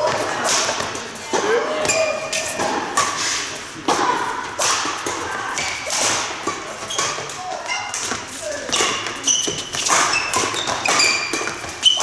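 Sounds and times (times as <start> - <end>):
rackets hitting shuttlecock: 0.0 - 12.0
shoe squeaks: 1.8 - 2.6, 6.8 - 7.9, 9.1 - 12.0
footfalls on court floor: 4.8 - 12.0.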